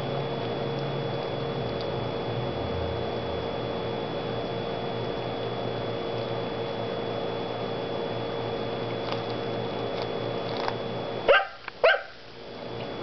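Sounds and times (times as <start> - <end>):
dog nibbling corn clicks: 8.9 - 10.9
dog barks: 11.3 - 12.2.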